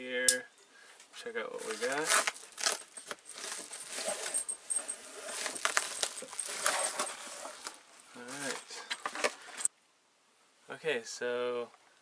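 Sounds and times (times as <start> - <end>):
cardboard boxes sliding: 1.6 - 9.7
paper mailer rustling and crinkling: 1.6 - 9.7.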